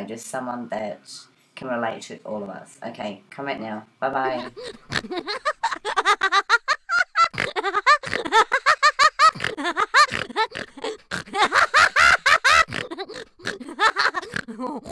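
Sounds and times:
giggling laughter: 4.3s - 14.9s.

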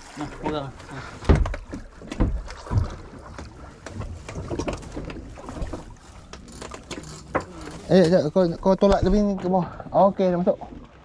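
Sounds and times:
water: 0.0s - 11.0s
thumps and knocks on boat: 1.2s - 7.6s, 8.6s - 9.5s.

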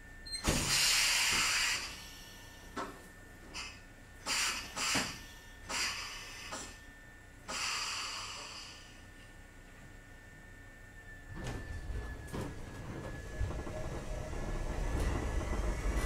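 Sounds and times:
train compressed-air hissing: 0.5s - 2.6s, 3.5s - 6.8s, 7.5s - 9.0s.

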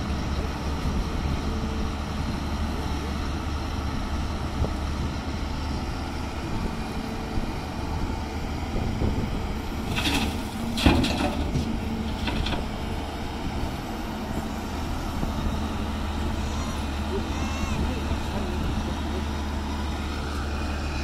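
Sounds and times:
excavator diesel engine running: 0.0s - 21.0s
stones clattering into truck: 9.8s - 12.7s.

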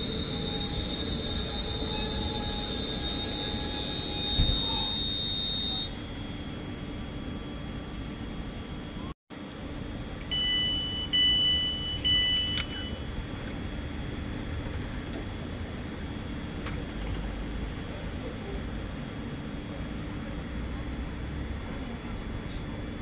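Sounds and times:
electronic door beeping: 0.0s - 7.0s, 10.3s - 13.2s
high steady train whine: 0.0s - 23.0s
low train hum: 0.0s - 23.0s.

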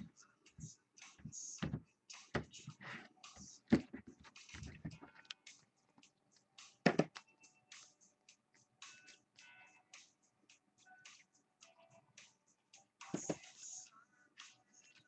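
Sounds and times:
clicks and taps at a desk: 6.8s - 7.2s.

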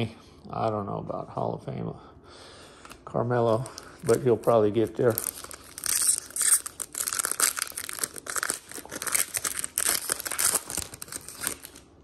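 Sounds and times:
wrapper being torn and crumpled: 3.4s - 12.0s.

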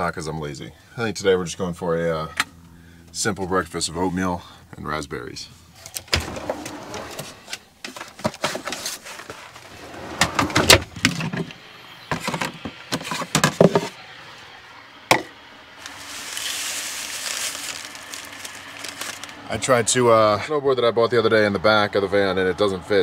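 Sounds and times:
drawer and cabinet opening and shutting: 5.9s - 13.9s.

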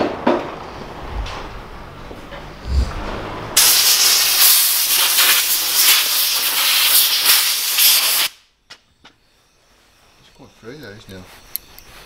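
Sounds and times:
compressed air blow gun hissing: 3.6s - 8.4s.

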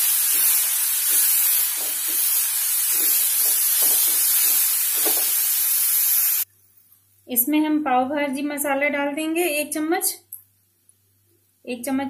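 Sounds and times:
vegetables sizzling in butter: 0.0s - 6.5s.

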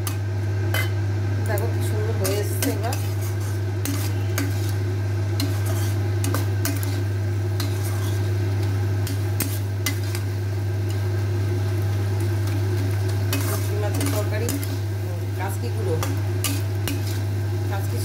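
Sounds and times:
light sizzle of frying: 0.0s - 18.0s
steady low hum: 0.0s - 18.0s
metal spatula scraping wok: 2.2s - 10.3s, 13.1s - 14.8s, 15.4s - 17.3s.

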